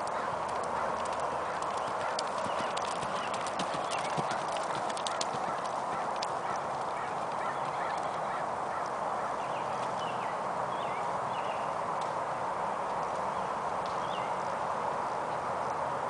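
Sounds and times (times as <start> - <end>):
horse hoofbeats on dirt: 0.0 - 8.4
steady background hiss: 0.0 - 16.0.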